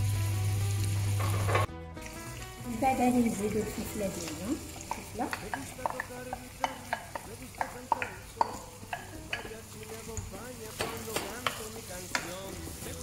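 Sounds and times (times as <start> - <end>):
onion sizzling in oil: 0.0 - 13.0
wooden spoon knocking and scraping: 4.9 - 12.4.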